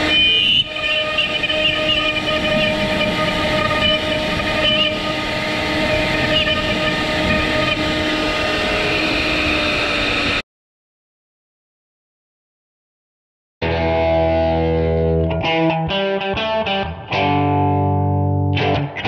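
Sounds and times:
router spindle whining while carving wood: 0:00.0 - 0:10.4.

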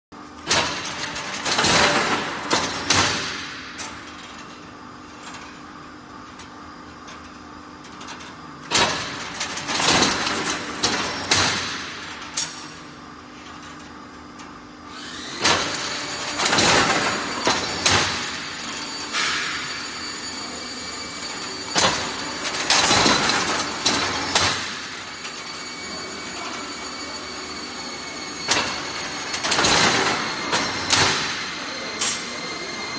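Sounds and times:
machine humming: 0:00.2 - 0:32.9
loud metal clanks and clatter: 0:15.4 - 0:20.0, 0:21.3 - 0:25.4, 0:28.5 - 0:32.3.

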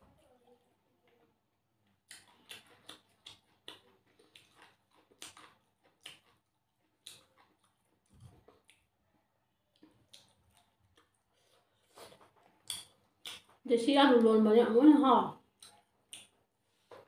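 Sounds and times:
wet eating clicks and smacks: 0:01.8 - 0:09.0, 0:09.7 - 0:13.6, 0:15.4 - 0:16.6.

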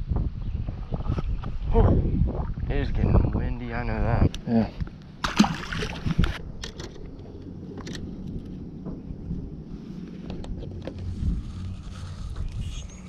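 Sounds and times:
wind rumbling on microphone: 0:00.0 - 0:13.0
low hum: 0:04.0 - 0:13.0.

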